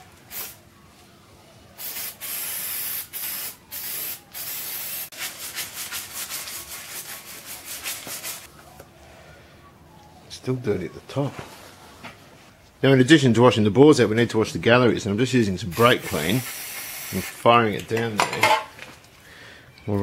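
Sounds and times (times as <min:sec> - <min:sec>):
aerosol can spraying: 0:01.8 - 0:06.5, 0:15.8 - 0:17.4.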